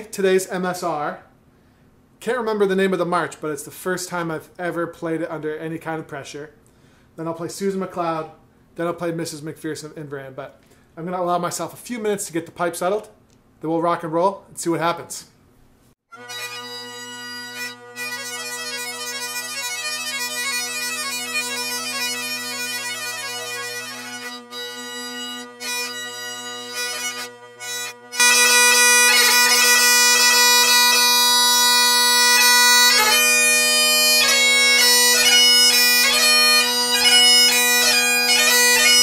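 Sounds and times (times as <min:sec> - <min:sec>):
bagpipe chanter notes: 0:16.1 - 0:39.0
bagpipe drones: 0:16.1 - 0:39.0.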